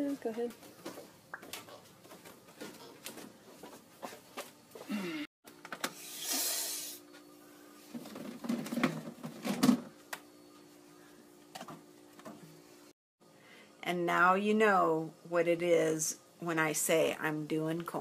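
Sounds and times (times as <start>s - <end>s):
hiss: 6.0s - 7.0s
steady low hum: 6.9s - 17.5s.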